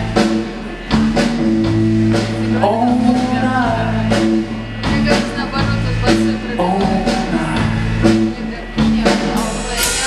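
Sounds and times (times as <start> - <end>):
rock band playing: 0.0 - 10.0
man singing: 2.3 - 10.0.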